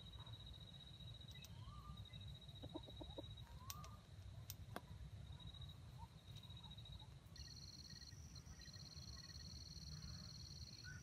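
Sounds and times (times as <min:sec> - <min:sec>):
soft chirps: 0:00.0 - 0:04.6, 0:05.2 - 0:11.0
pulsing insect whine: 0:05.4 - 0:11.0.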